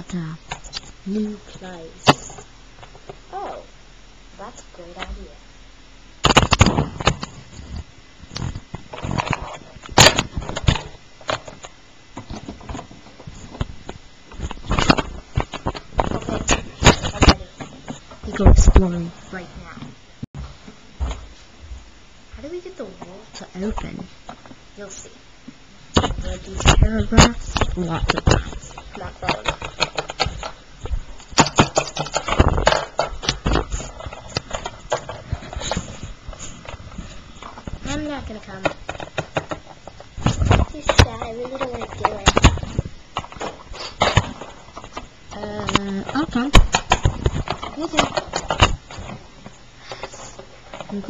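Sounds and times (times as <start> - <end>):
plastic toys tapping and clicking: 25.9 - 36.0, 37.4 - 49.2
plastic toys clicking on hard surface: 27.6 - 30.6, 31.4 - 35.2.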